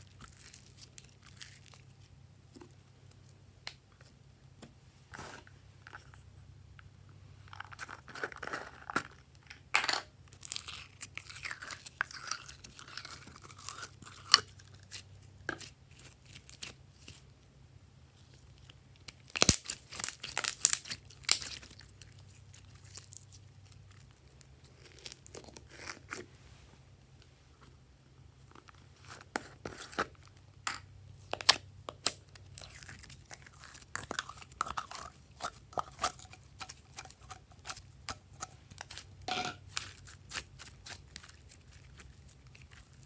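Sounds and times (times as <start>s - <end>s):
slime squishing with wet crackles: 0.0s - 4.2s, 10.2s - 17.4s, 18.1s - 26.3s, 28.4s - 43.0s.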